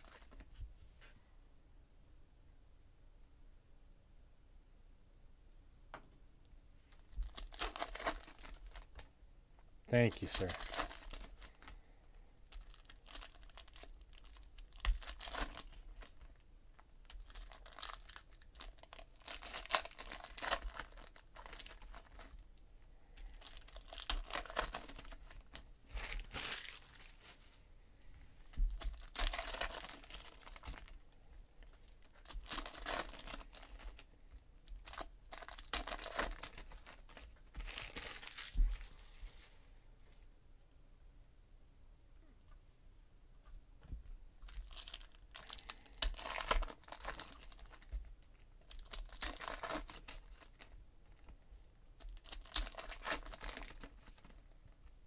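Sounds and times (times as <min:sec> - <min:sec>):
foil wrappers tearing and crinkling: 0:07.0 - 0:09.1, 0:10.1 - 0:11.7, 0:12.5 - 0:16.4, 0:17.0 - 0:22.4, 0:23.2 - 0:27.3, 0:28.4 - 0:31.0, 0:31.6 - 0:34.1, 0:34.7 - 0:38.7, 0:44.5 - 0:51.3, 0:52.0 - 0:54.4.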